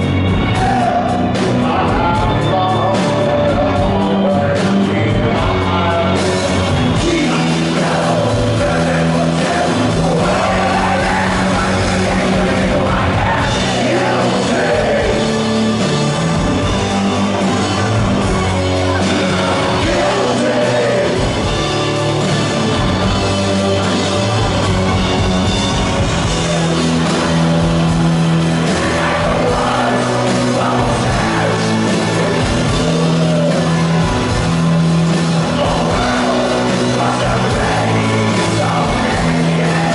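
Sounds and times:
man singing: 0.0 - 15.7, 18.8 - 21.9, 28.6 - 34.3, 35.4 - 39.9
live rock band playing: 0.0 - 39.9.

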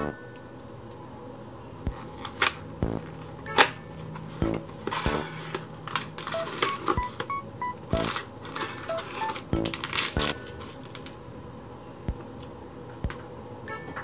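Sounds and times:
short beeping tones: 2.8 - 3.7, 6.3 - 8.2, 8.9 - 10.6
clicks and taps: 4.4 - 5.2, 6.3 - 8.2, 8.9 - 10.4
paper and cellophane rustling: 5.9 - 7.0, 8.0 - 11.2.

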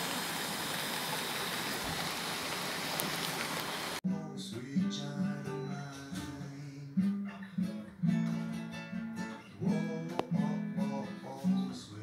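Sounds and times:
strummed acoustic guitar: 4.1 - 12.0.

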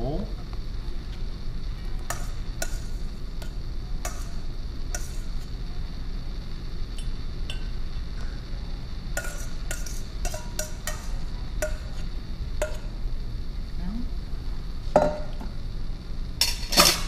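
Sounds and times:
steady low hum: 0.0 - 17.0
tongs clinking against metal bowl: 7.0 - 7.8, 9.2 - 12.0.

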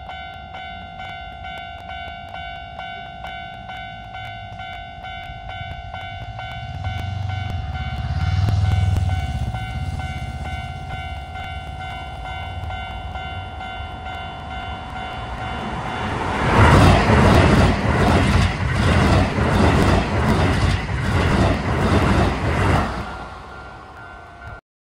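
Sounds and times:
level crossing alarm ringing: 0.0 - 17.1, 22.9 - 24.6
electric train passing: 0.0 - 24.6.

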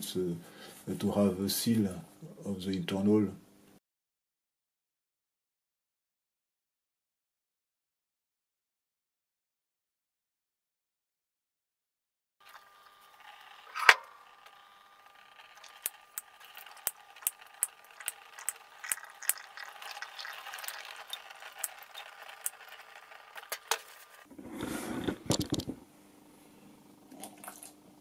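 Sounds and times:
oil dripping into plastic tub: 15.6 - 22.6
faint trickle of oil: 16.5 - 23.1.

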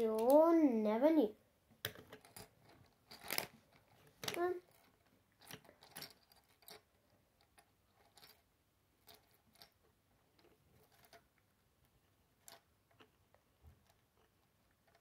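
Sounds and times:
plastic toy bricks clicking: 1.8 - 4.8.

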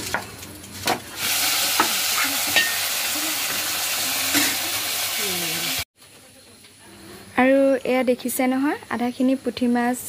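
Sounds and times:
fish sizzling in hot oil: 0.0 - 5.9.

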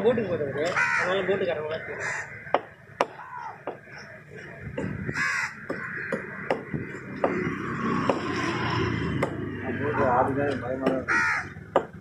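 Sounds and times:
crows cawing: 0.4 - 4.2, 4.8 - 10.1, 10.7 - 12.0
cleaver chopping on wooden block: 5.6 - 8.4, 9.1 - 9.5, 11.7 - 12.0.

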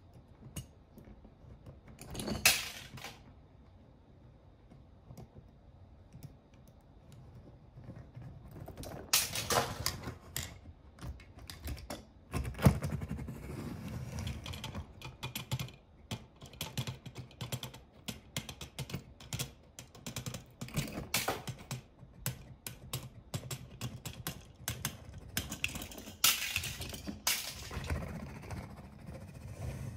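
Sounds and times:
toy cars clattering on floor: 1.9 - 3.2, 8.7 - 12.1, 24.2 - 28.2.

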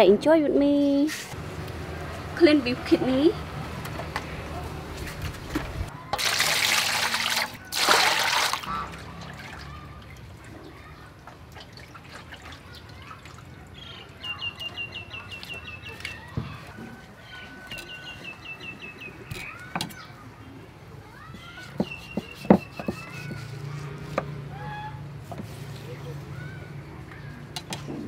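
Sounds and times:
water splashing in metal bowl: 6.2 - 10.5
bird chirping: 13.8 - 16.3, 17.3 - 20.2, 21.8 - 23.4.

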